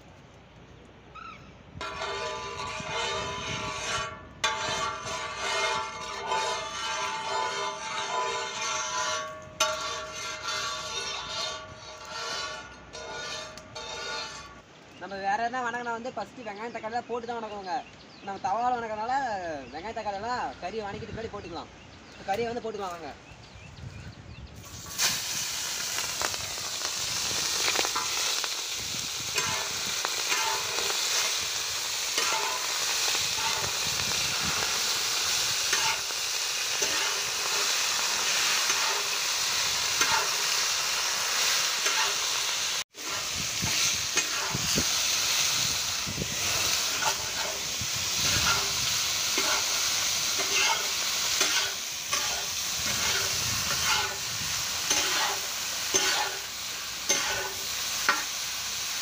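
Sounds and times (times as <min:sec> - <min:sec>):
chicken sizzling in hot oil: 0:01.8 - 0:14.4, 0:24.6 - 0:59.0
metal spatula scraping a pan: 0:01.8 - 0:14.6, 0:24.8 - 0:58.4.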